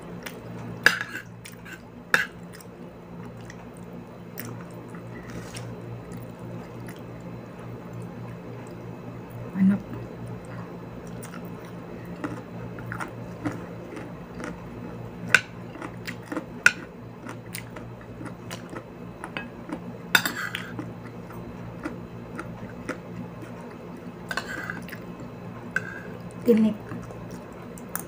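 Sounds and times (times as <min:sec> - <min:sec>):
chewing: 0:00.2 - 0:07.3, 0:10.4 - 0:14.7, 0:15.4 - 0:28.0.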